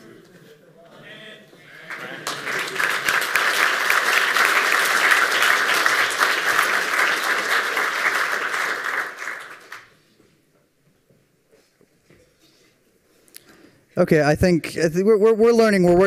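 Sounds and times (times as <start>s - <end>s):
audience applauding: 1.6s - 10.0s.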